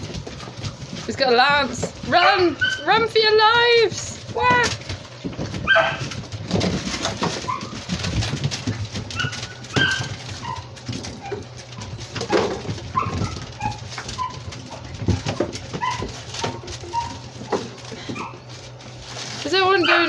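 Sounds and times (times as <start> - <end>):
puppies squeaking and yipping: 0.0 - 3.7, 4.3 - 20.0
paws and toys on tiled floor: 0.0 - 20.0.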